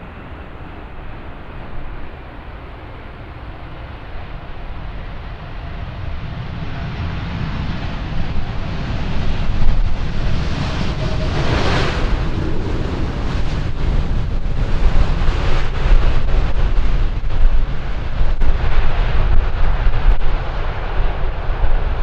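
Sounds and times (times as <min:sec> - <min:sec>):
jet engines rumbling: 0:00.0 - 0:22.0
wind buffeting microphone: 0:00.0 - 0:22.0.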